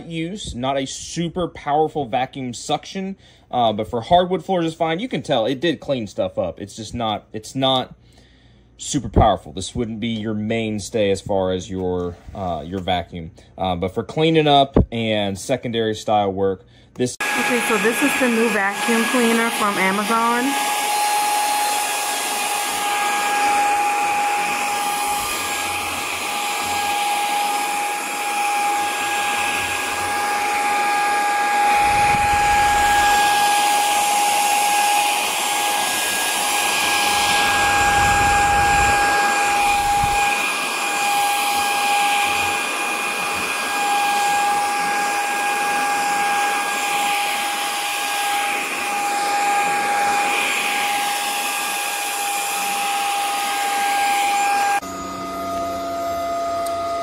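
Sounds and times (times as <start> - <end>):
vacuum motor whine: 17.2 - 57.0
dull low rumble: 31.6 - 33.3.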